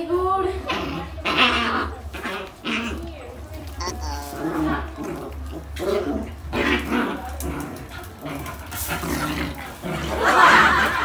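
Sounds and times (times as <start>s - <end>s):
dogs growling while play-fighting: 5.1s - 10.3s.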